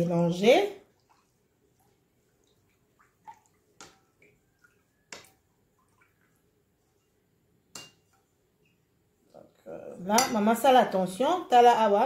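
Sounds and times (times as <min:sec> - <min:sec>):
water splashing in bowl: 0:00.8 - 0:06.5
metal utensil clinking in bowl: 0:10.1 - 0:10.6.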